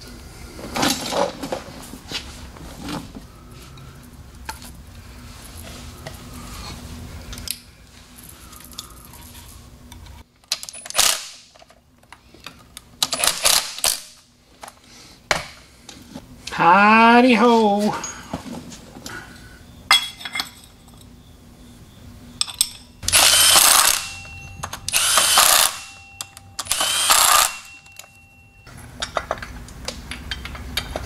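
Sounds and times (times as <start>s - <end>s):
metallic clinks of hand tools: 23.6s - 29.2s.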